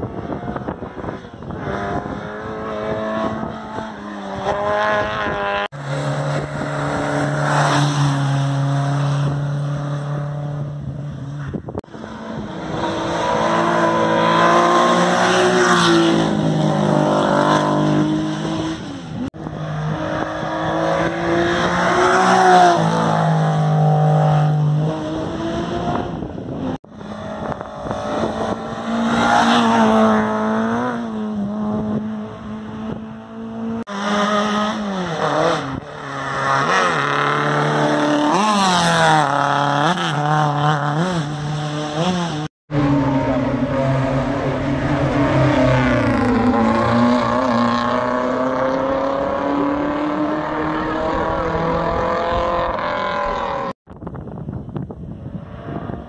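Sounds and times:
rally car engines revving: 0.0 - 53.8.

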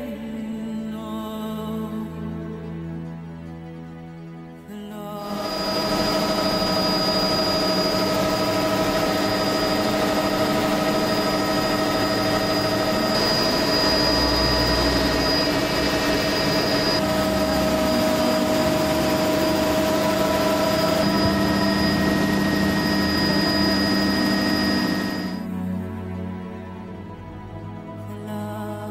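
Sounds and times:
helicopter engine and rotor drone: 5.2 - 25.5.

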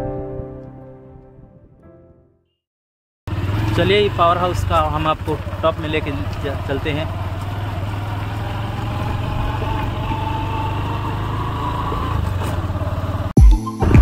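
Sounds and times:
motorcycle engine running: 3.3 - 13.4
road and wind noise: 3.3 - 13.4.

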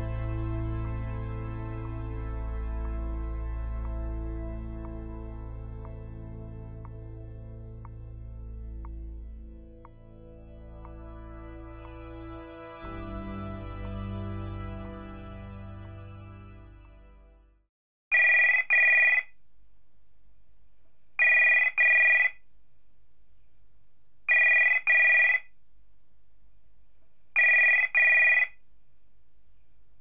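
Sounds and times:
music: 0.0 - 17.7
telephone ringing: 18.1 - 19.4, 21.2 - 22.4, 24.3 - 25.5, 27.4 - 28.6
faint low hum: 18.6 - 30.0.

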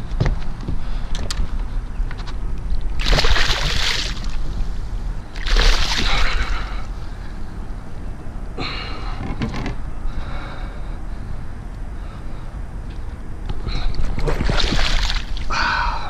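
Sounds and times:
fish splashing in water: 3.0 - 4.4, 5.4 - 6.6, 14.3 - 15.5.

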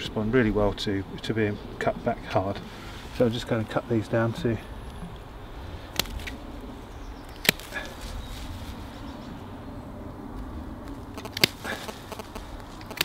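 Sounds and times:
secateurs snipping stems: 5.9 - 6.4, 7.3 - 8.0, 11.2 - 13.0.

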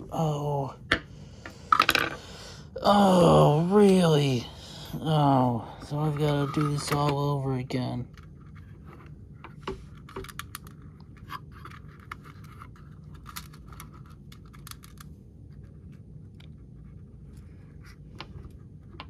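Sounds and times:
low steady hum: 0.0 - 19.0
small parts clicking and scratching: 8.0 - 19.0.

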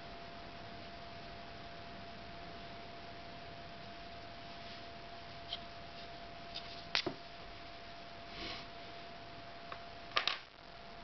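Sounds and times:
faint steady hum: 0.0 - 11.0
soft rustle: 4.2 - 7.0.

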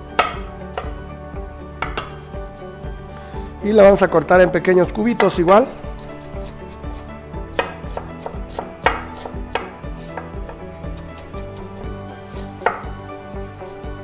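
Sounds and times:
knife chopping on wooden board: 0.1 - 1.0, 1.8 - 2.2, 7.5 - 10.6, 12.5 - 13.0.

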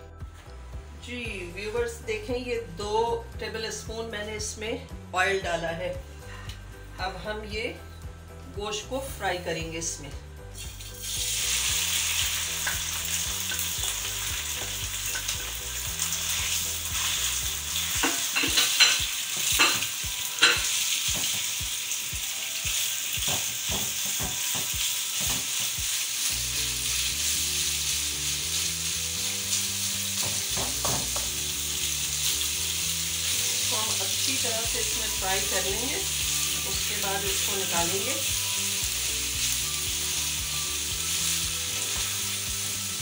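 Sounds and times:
meat sizzling in hot oil: 10.5 - 43.0.

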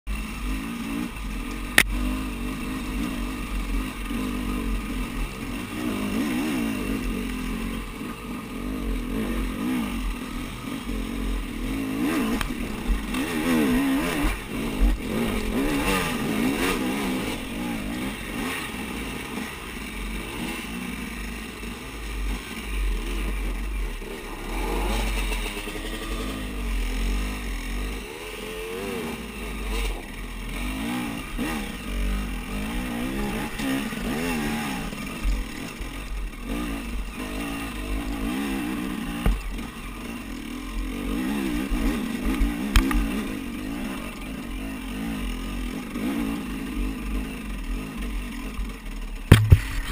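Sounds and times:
motorcycle engine revving: 0.1 - 49.9
motorcycle knocking over rocks: 39.1 - 39.7, 49.3 - 49.9.

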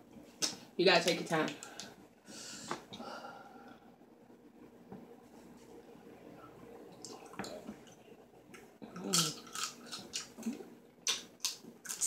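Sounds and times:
person licking and sucking fingers: 8.5 - 12.0.

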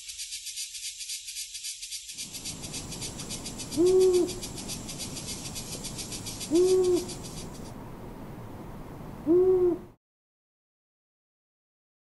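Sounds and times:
insects chirring: 0.0 - 7.8
owl hooting: 2.3 - 7.7, 9.2 - 10.0.

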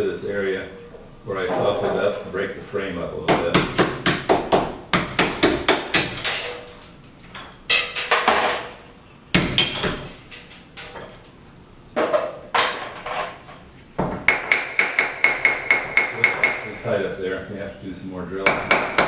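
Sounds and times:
hammer tapping on glass block: 14.3 - 16.8, 18.5 - 19.0.

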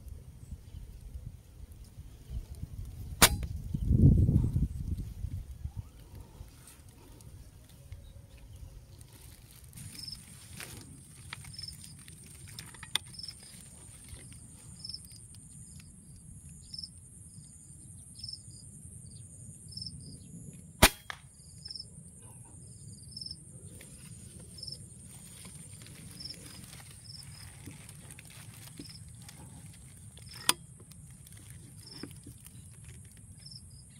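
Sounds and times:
airgun shot: 3.2 - 3.6, 20.8 - 21.3.

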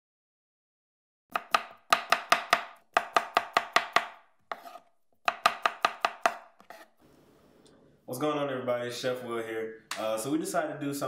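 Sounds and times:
knife chopping on cutting board: 1.3 - 6.9.

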